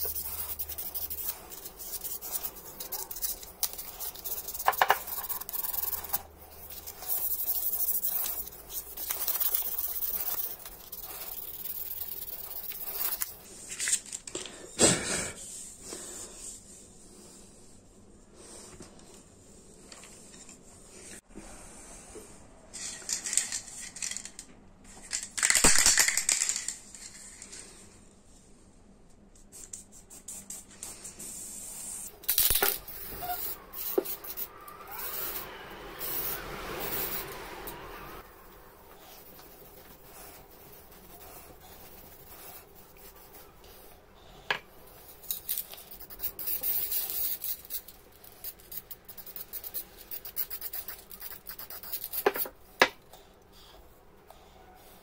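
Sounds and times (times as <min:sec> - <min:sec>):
sandpaper rubbing on wood: 0:00.0 - 0:13.3
aerosol spray can hissing: 0:36.0 - 0:37.3.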